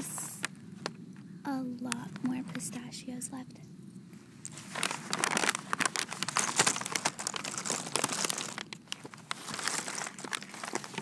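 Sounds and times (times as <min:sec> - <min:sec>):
nuts shifting in bag: 0:04.4 - 0:11.0
paper bag crinkling: 0:04.4 - 0:11.0.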